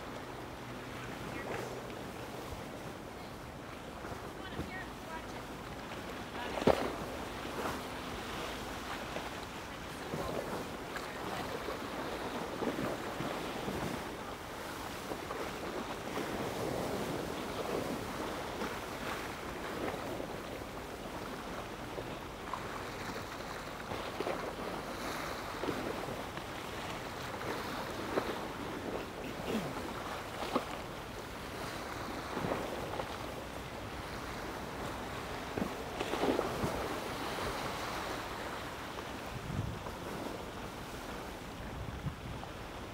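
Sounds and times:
small waves lapping on stone: 0.0s - 42.9s
wind on microphone: 34.0s - 42.9s.

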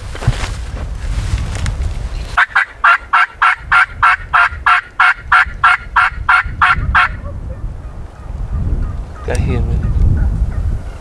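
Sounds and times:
turkey yelping: 2.4s - 7.6s.

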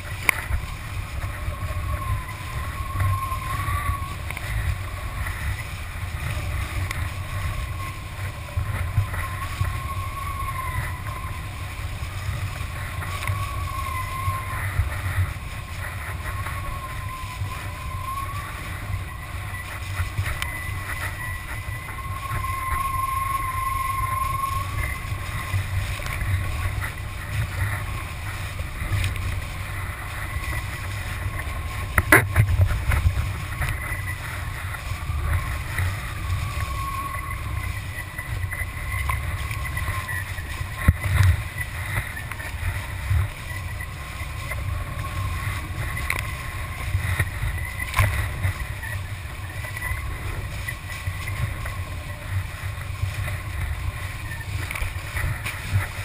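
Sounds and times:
water rushing and splashing: 0.0s - 56.0s
wind buffeting microphone: 0.0s - 56.0s
faint high whistle: 1.6s - 4.2s, 13.0s - 14.9s, 16.0s - 26.4s, 33.8s - 41.3s.

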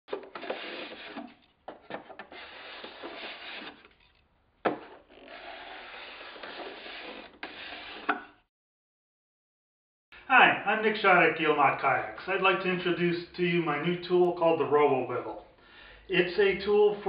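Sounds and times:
plane shaving wood: 0.1s - 8.2s.

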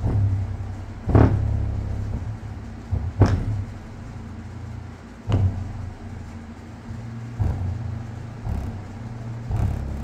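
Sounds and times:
sharp loud bass hits: 0.0s - 4.1s, 5.3s - 6.3s, 7.3s - 10.0s
deep bass notes: 0.0s - 10.0s.

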